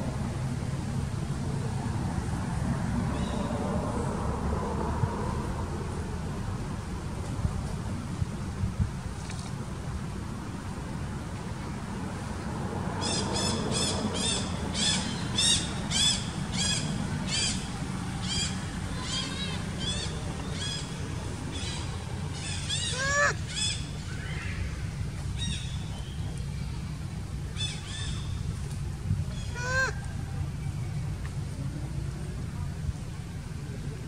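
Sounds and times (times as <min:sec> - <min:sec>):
steady low rumble: 0:00.0 - 0:34.0
short arched animal calls: 0:22.4 - 0:23.8, 0:29.4 - 0:30.0.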